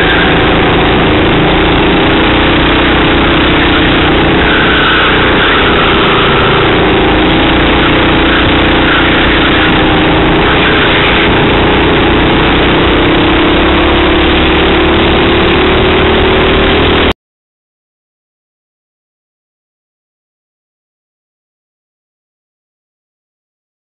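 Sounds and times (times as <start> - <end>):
kart engine running at speed: 0.0 - 17.2.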